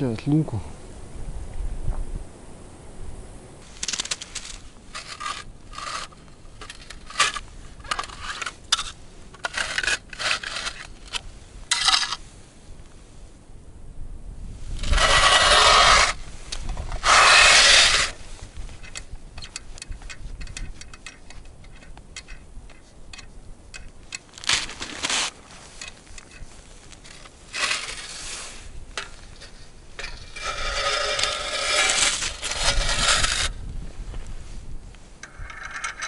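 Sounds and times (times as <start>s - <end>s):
scraping on ice: 3.6s - 12.2s, 14.7s - 19.0s, 24.3s - 33.6s
small clicks and knocks: 18.8s - 24.6s.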